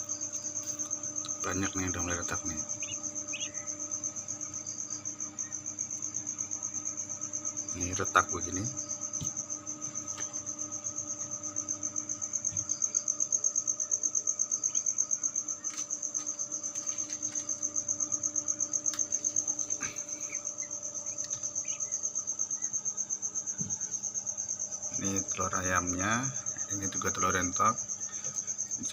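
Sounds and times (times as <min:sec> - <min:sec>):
incubator fans humming: 0:00.0 - 0:28.9
insect pulsing trill: 0:00.0 - 0:28.9
faint clicks of eggs handled: 0:15.7 - 0:17.6, 0:21.0 - 0:21.8.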